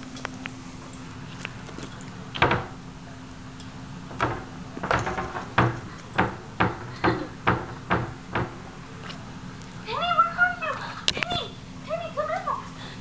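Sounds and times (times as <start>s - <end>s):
footsteps on carpeted stairs: 4.1s - 9.2s.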